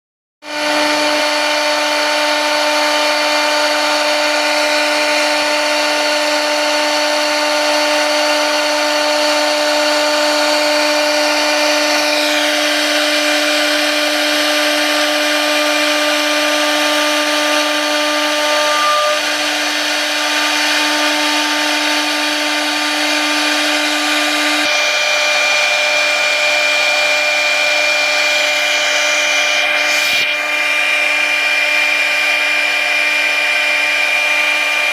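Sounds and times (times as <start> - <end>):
router spindle whine: 0.5 - 34.9
higher whine: 15.6 - 21.1.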